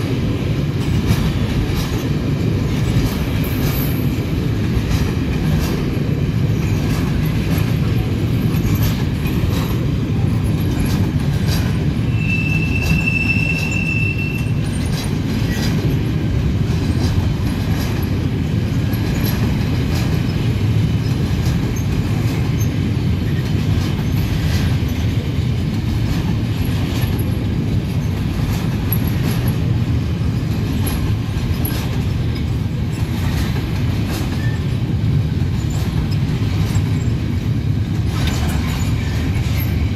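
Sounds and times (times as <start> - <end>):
freight train rumbling past: 0.0 - 39.9
wheels clicking over rail joints: 0.0 - 39.9
high wheel squeal: 12.0 - 14.9.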